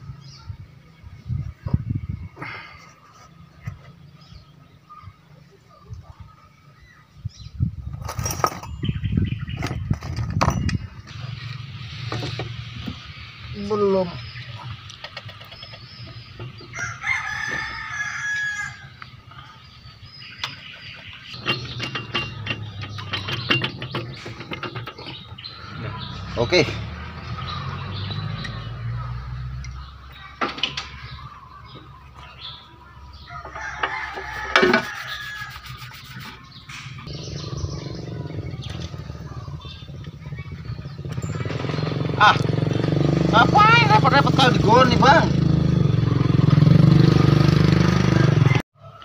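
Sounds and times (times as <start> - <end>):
rooster crowing: 16.7 - 19.0, 33.2 - 36.2, 48.2 - 49.0
metal scraping and clanking: 21.3 - 26.5, 33.4 - 37.1.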